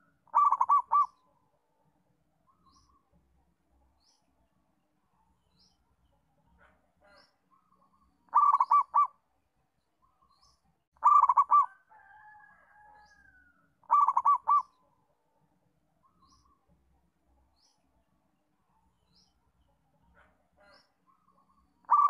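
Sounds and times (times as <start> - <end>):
dove cooing: 0.0 - 1.2, 8.3 - 9.2, 11.0 - 11.8, 13.8 - 14.8.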